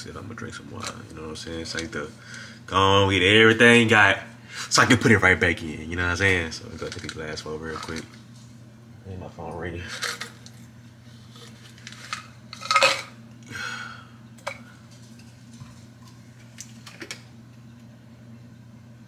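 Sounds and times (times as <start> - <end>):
bottles and containers clinking: 12.0 - 13.2.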